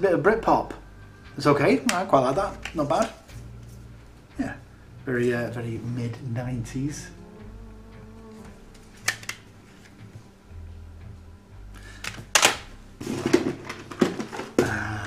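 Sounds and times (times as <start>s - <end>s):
plastic cd cases clicking: 1.8s - 3.2s, 9.0s - 9.5s, 12.0s - 14.8s.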